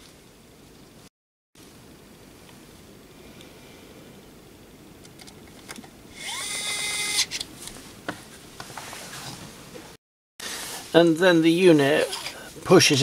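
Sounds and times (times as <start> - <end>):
electric screwdriver whirring: 6.2 - 7.4.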